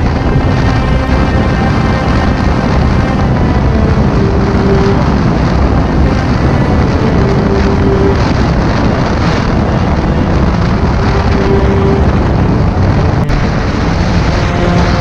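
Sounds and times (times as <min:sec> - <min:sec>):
wind rushing over microphone: 0:00.0 - 0:15.0.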